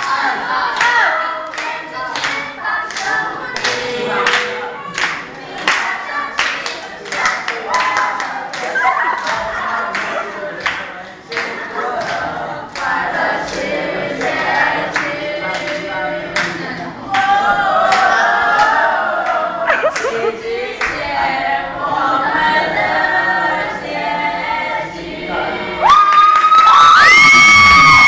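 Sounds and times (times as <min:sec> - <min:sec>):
young voices singing pop song: 0:00.0 - 0:28.0
hand claps on the beat: 0:00.8 - 0:13.6
high held whoop: 0:25.8 - 0:28.0.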